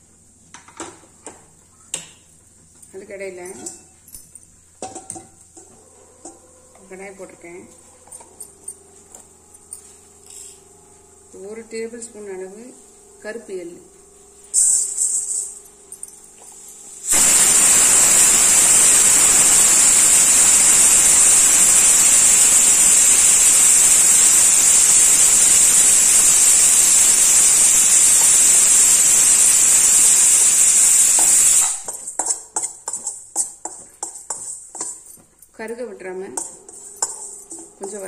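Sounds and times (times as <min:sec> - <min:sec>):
loud steady hiss: 0:16.9 - 0:32.0
metal spoon scraping a pan: 0:31.9 - 0:35.1, 0:36.3 - 0:38.0.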